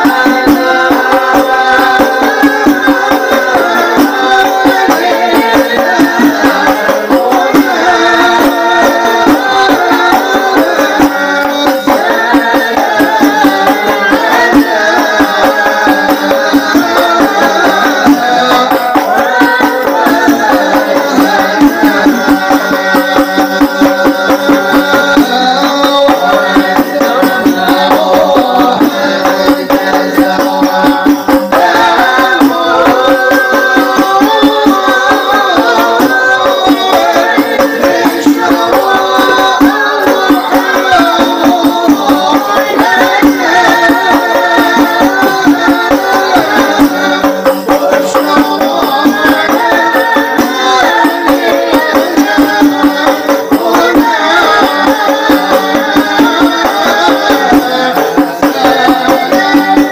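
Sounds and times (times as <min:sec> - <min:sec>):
hand-struck frame drums: 0:00.0 - 0:59.9
voices singing together: 0:00.0 - 0:59.9.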